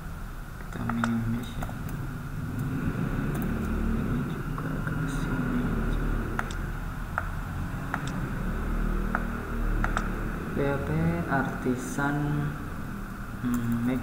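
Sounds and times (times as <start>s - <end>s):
low background rumble and hum: 0.0s - 14.0s
computer mouse clicks: 0.8s - 2.7s, 3.3s - 3.8s, 6.4s - 6.6s, 7.9s - 8.2s, 9.1s - 10.1s.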